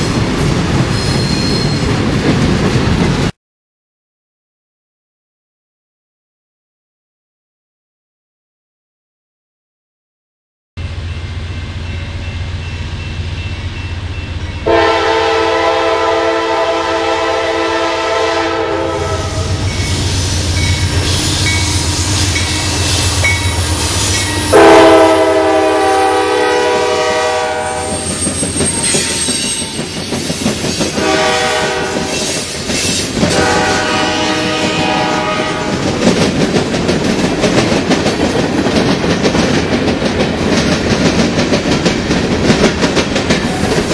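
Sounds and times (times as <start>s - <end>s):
diesel locomotive engines rumbling: 0.0s - 3.3s, 10.8s - 43.9s
train air horn blasts: 14.6s - 29.8s, 30.9s - 36.0s.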